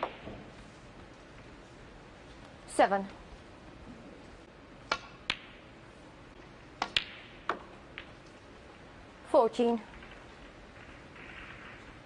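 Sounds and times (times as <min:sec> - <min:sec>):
snooker balls clicking: 0:00.0 - 0:01.5, 0:04.2 - 0:08.8, 0:09.8 - 0:12.0.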